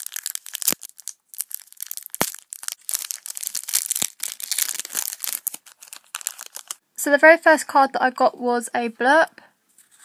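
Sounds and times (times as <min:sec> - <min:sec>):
foil packet tearing and crinkling: 0:00.0 - 0:06.8.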